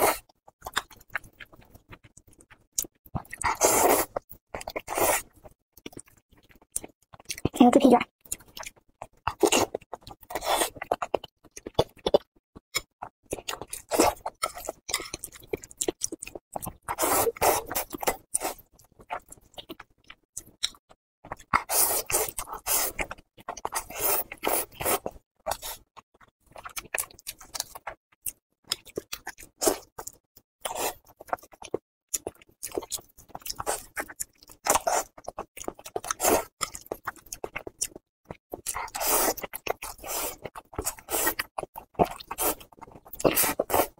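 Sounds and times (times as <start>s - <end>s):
chewing: 0.0s - 7.6s, 8.2s - 43.9s
slurping noodles: 3.3s - 4.2s, 4.8s - 5.3s, 16.8s - 18.7s, 21.6s - 25.9s, 36.0s - 36.6s, 38.8s - 43.9s.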